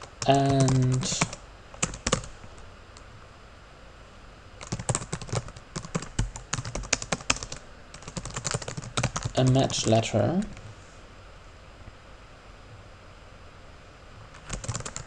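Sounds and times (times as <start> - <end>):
typing on computer keyboard: 0.0 - 2.3, 4.6 - 9.6, 14.4 - 15.0.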